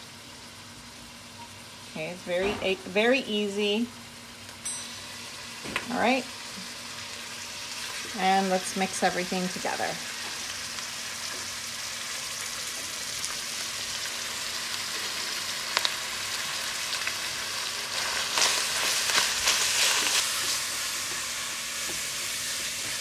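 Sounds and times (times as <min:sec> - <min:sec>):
meat sizzling in a pan: 0:00.0 - 0:23.0
meat stirred in pan: 0:09.7 - 0:23.0.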